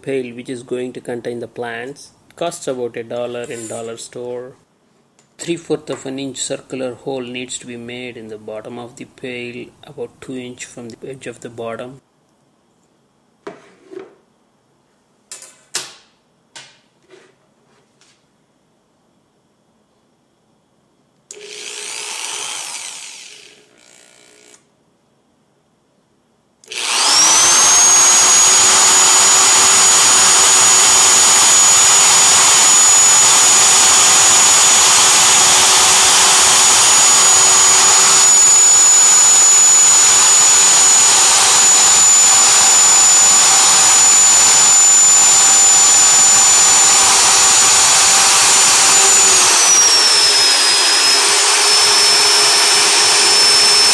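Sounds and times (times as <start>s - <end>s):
electric drill whining: 21.3s - 24.6s, 26.6s - 53.9s.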